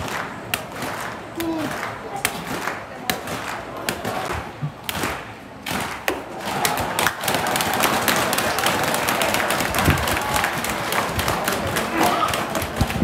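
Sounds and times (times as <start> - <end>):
spectators applauding: 6.4 - 13.0.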